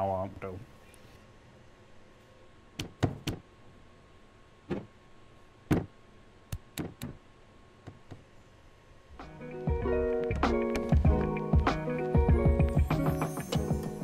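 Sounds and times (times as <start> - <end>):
background music: 9.2 - 14.0.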